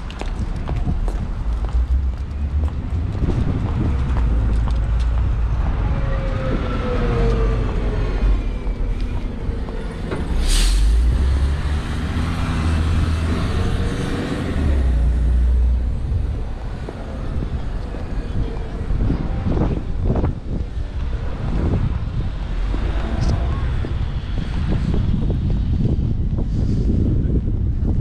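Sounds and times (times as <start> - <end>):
bus engine rumble: 0.0 - 28.0
city road traffic: 0.0 - 28.0
sharp hiss of air: 10.4 - 11.1.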